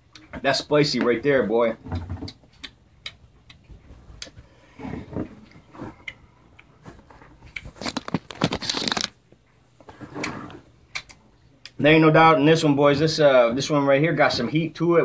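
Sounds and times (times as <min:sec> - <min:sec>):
bottle handling clicks and rustles: 0:07.7 - 0:09.1.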